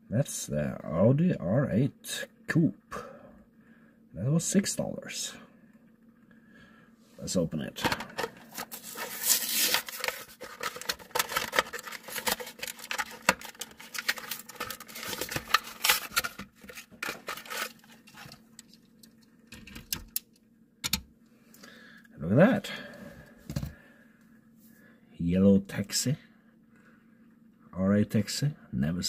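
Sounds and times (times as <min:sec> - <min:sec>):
plastic blister pack crackling: 0:08.0 - 0:19.2.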